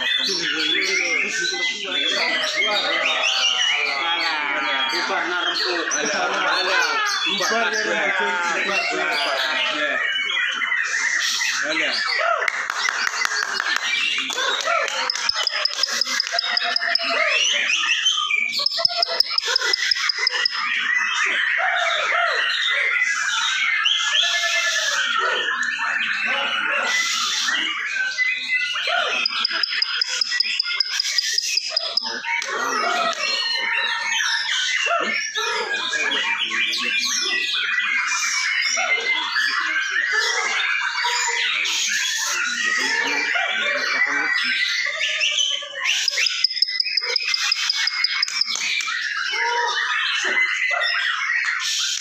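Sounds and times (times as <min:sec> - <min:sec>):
birds singing in chorus: 0:00.0 - 0:52.0.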